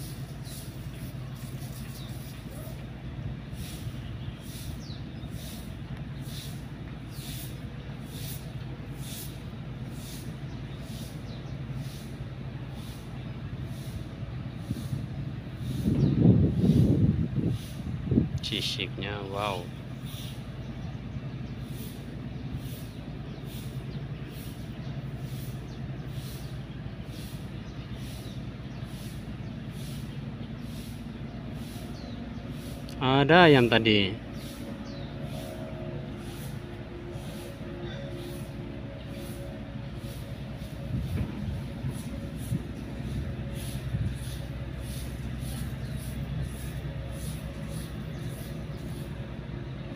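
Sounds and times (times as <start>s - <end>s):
low engine-like hum: 0.0s - 49.9s
faint high pulses: 33.6s - 49.4s.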